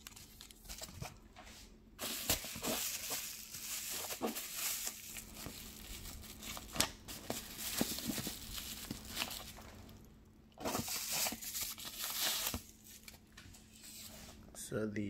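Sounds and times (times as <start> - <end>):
tissue paper crinkling: 2.0 - 13.2.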